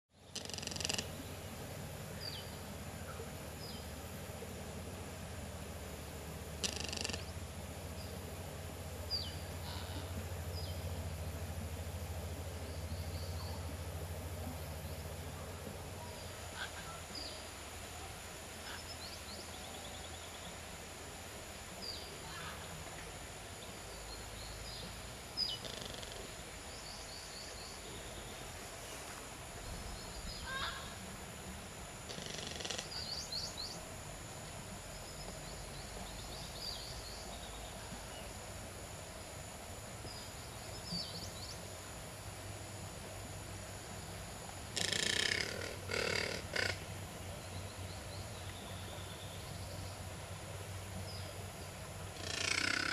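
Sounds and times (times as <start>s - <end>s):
steady low hum: 0.1s - 52.9s
rapid high bird chattering: 0.3s - 1.2s, 6.6s - 7.3s, 32.1s - 33.2s, 44.8s - 46.8s, 52.2s - 52.9s.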